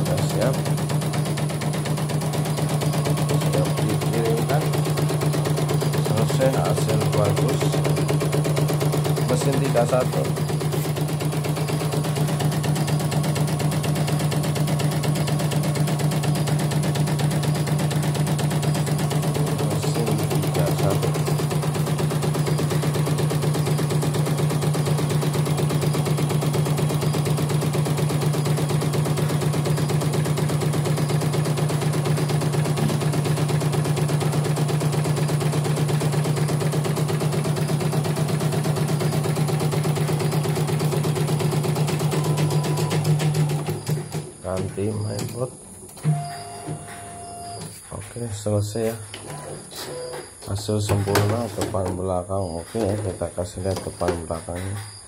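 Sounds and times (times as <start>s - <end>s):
embroidery machine stitching: 0.0s - 47.7s.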